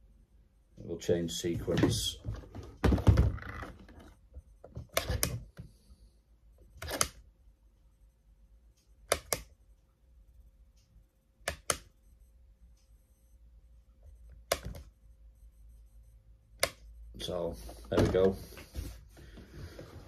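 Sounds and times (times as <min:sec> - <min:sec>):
toggle switches clicking: 0:08.8 - 0:09.6, 0:11.4 - 0:12.0, 0:14.4 - 0:14.9, 0:16.6 - 0:16.9.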